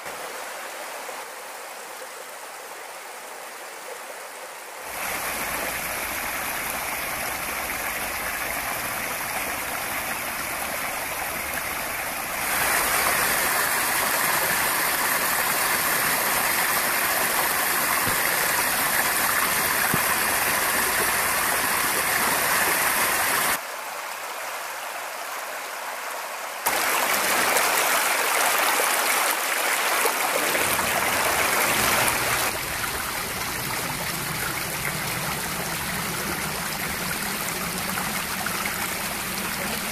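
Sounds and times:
creek splashing over cobbles: 4.9s - 23.6s, 26.7s - 39.9s.

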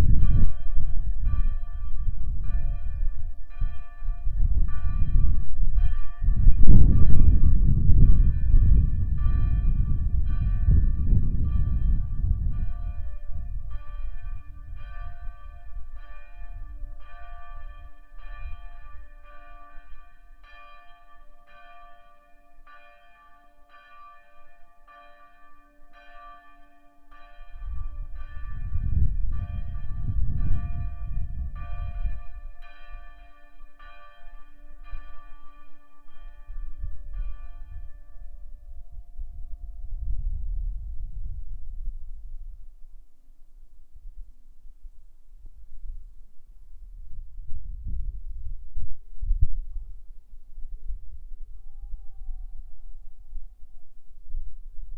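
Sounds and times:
low rumble: 0.0s - 19.0s, 27.6s - 32.7s
church bells tolling: 0.0s - 39.4s.

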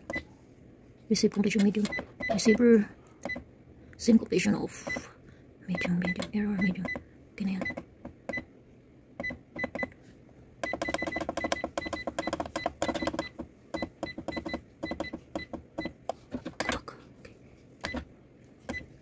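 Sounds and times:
printer button beeps: 0.0s - 0.3s, 1.6s - 2.6s, 3.2s - 3.4s, 4.8s - 5.1s, 5.7s - 7.0s, 7.6s - 8.5s, 9.2s - 9.9s, 10.6s - 16.0s, 18.7s - 18.9s.

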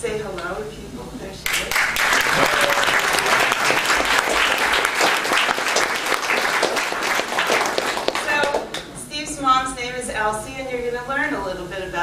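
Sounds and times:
audience applauding: 1.5s - 8.9s.

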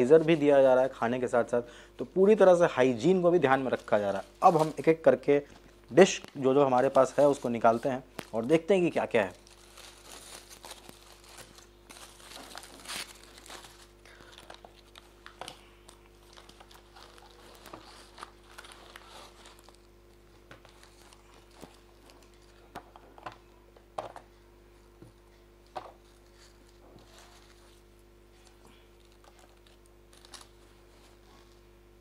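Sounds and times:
plastic bag rustling: 3.0s - 5.1s, 6.1s - 15.6s, 16.2s - 19.9s.

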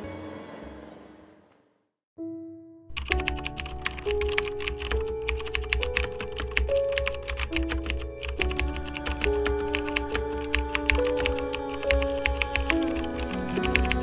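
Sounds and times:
background music: 2.2s - 14.0s
keyboard typing clicks: 2.9s - 14.0s.

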